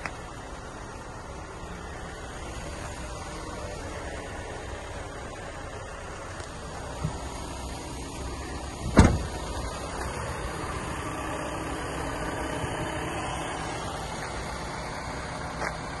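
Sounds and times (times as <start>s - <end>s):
van door slamming shut: 8.8s - 9.4s.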